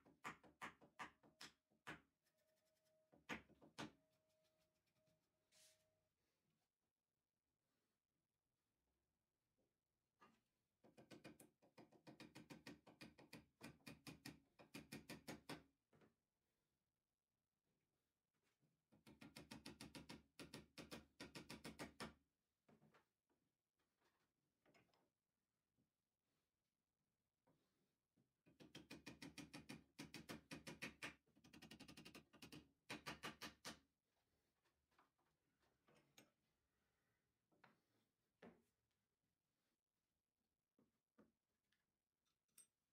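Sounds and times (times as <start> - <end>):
small hammer tapping a nail: 0.0 - 2.1, 10.9 - 15.7, 19.0 - 22.2, 28.5 - 33.8.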